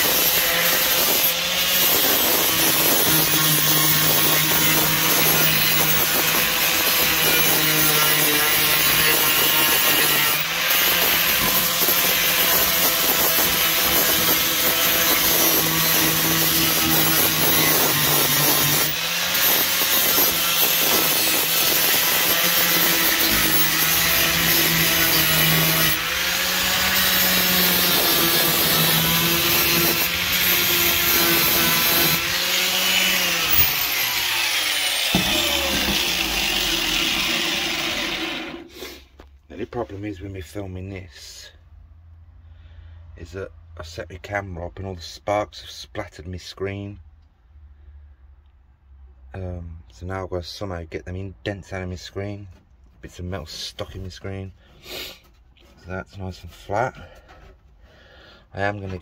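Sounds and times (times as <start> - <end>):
angle grinder grinding metal: 0.0 - 39.0.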